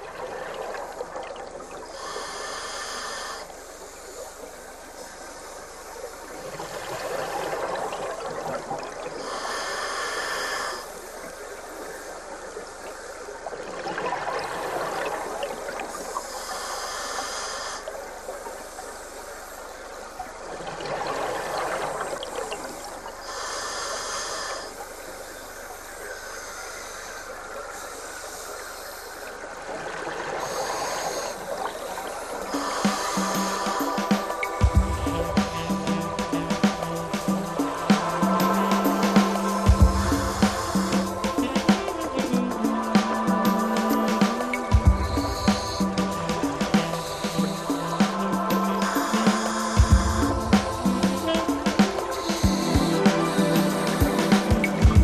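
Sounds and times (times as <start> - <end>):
regulator hiss on inhale: 1.8 - 13.3, 14.5 - 20.1, 21.4 - 29.5, 30.4 - 55.0
bubbling underwater exhalation: 30.4 - 55.0.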